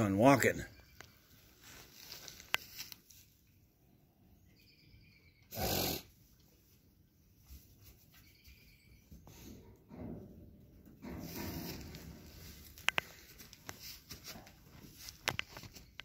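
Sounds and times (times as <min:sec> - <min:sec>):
straw rustling: 0:01.6 - 0:03.3
goat snorting: 0:05.5 - 0:06.2.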